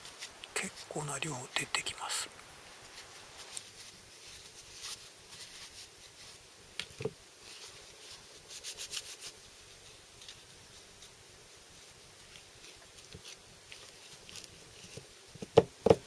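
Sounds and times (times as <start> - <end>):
tissue paper rustling: 2.6 - 6.4, 7.4 - 10.8.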